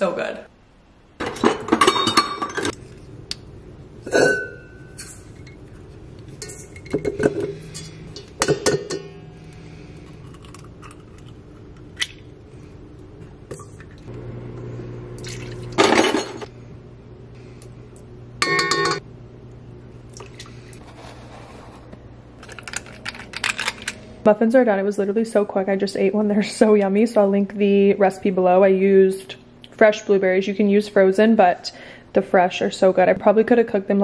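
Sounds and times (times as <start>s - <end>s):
utensils clinking against metal bowl: 1.2s - 2.8s, 6.4s - 9.2s, 18.4s - 19.0s.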